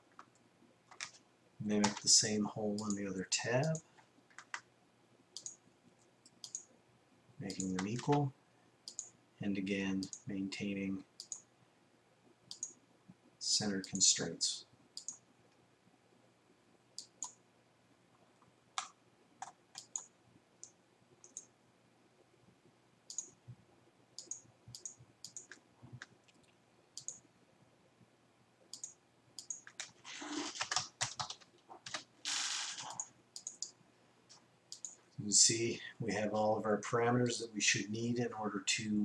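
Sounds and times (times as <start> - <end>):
mouse and keyboard clicks: 5.4 - 5.6, 6.2 - 6.7, 18.8 - 21.5, 24.2 - 27.2, 32.8 - 35.0.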